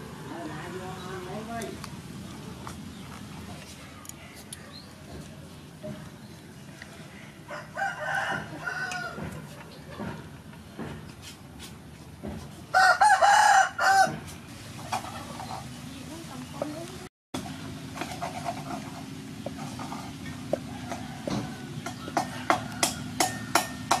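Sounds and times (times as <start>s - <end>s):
rooster crowing: 7.2s - 9.3s, 12.7s - 14.2s, 20.5s - 23.8s.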